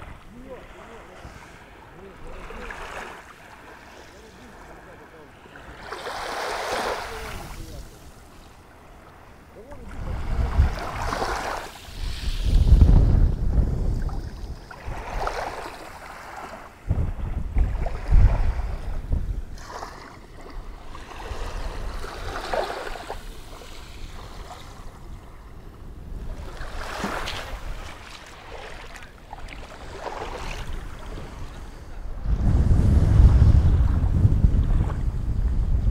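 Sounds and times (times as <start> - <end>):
small waves washing on beach: 0.0 - 35.9
wind buffeting microphone: 9.6 - 28.6, 29.8 - 35.9.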